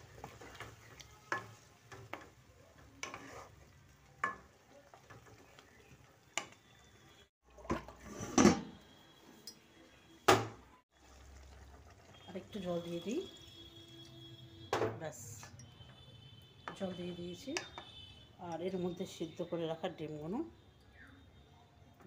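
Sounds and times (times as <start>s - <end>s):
metal spoon scraping cooking pan: 0.0s - 5.5s.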